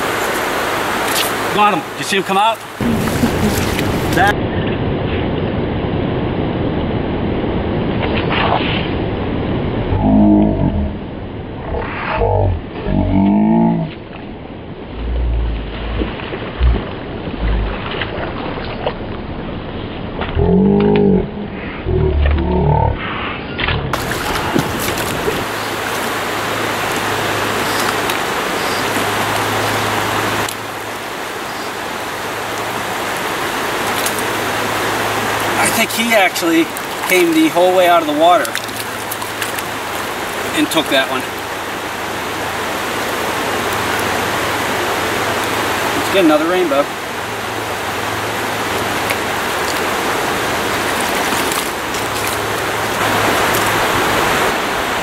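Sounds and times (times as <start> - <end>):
stream water running over rocks: 0.0 - 4.4, 23.9 - 55.0.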